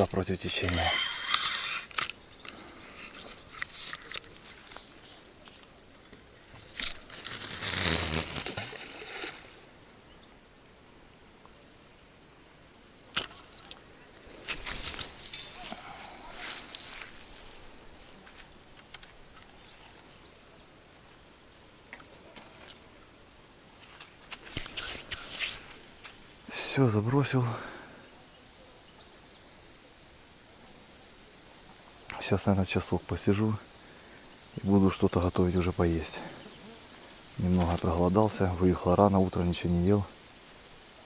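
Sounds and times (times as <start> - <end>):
rod and reel clicking: 0.6 - 4.3, 14.8 - 18.2, 18.8 - 20.2.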